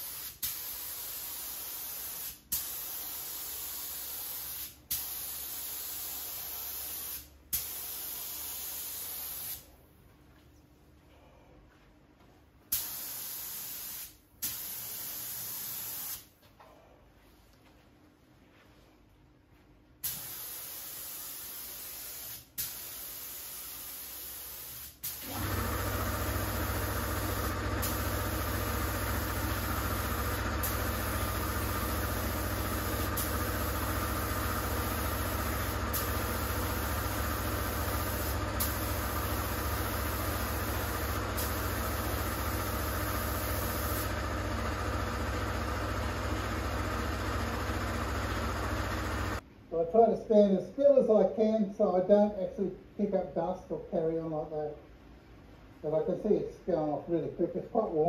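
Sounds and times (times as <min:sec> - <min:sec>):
spray gun hissing: 0:20.0 - 0:44.3
air compressor humming: 0:25.1 - 0:49.4.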